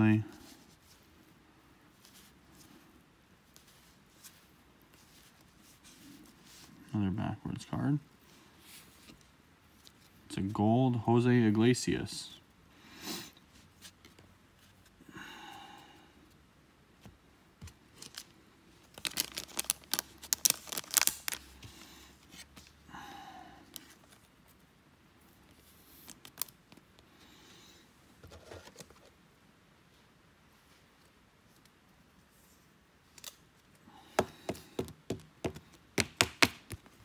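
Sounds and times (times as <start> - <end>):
cards being shuffled: 17.0 - 22.8, 25.5 - 26.9, 33.1 - 33.4, 34.2 - 37.0
plastic wrapper crinkling: 17.9 - 21.6, 26.0 - 26.9.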